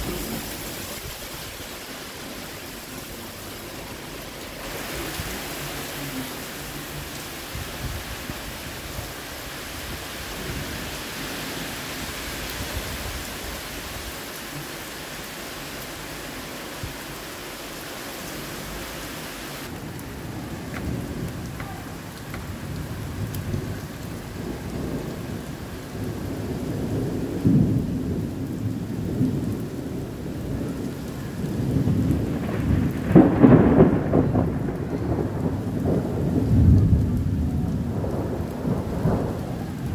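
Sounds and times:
heavy rain pouring: 0.0 - 39.9
low thunder rumbling: 19.6 - 39.9.

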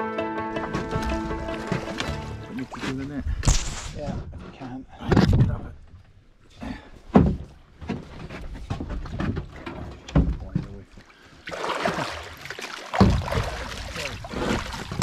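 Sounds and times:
fish splashing in water: 11.4 - 15.0.

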